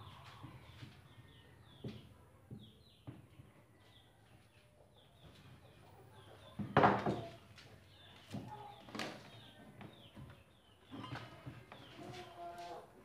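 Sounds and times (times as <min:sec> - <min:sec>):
birds chirping faintly: 0:00.0 - 0:13.0
wood and tools clattering: 0:06.4 - 0:12.8.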